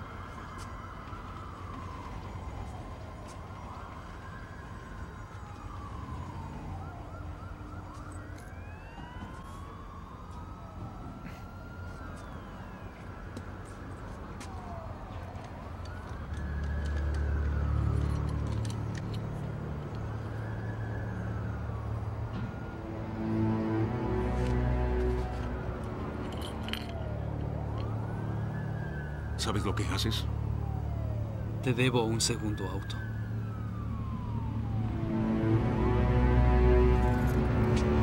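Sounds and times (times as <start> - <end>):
police sirens wailing: 0.0 - 38.0.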